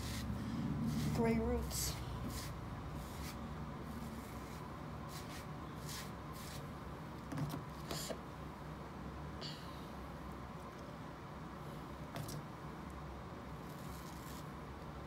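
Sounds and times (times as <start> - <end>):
hairbrush brushing hair: 0.0 - 6.7
low room hum: 0.0 - 15.0.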